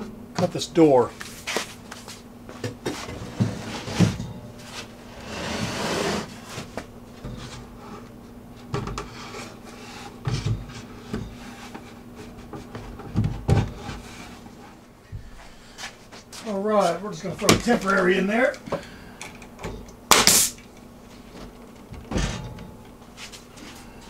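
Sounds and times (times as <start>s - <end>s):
faint steady hum: 0.0s - 24.0s
wooden box scraping slide: 5.2s - 6.6s.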